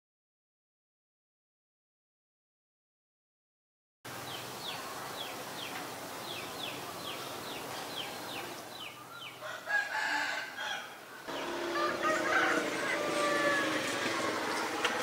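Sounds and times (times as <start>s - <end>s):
other bird calls: 4.3s - 15.0s
rooster crowing: 9.3s - 14.9s.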